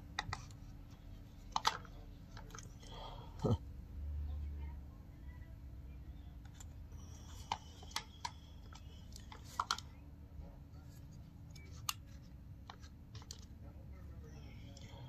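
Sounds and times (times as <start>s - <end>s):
plastic and metal parts clicking: 1.4s - 2.7s.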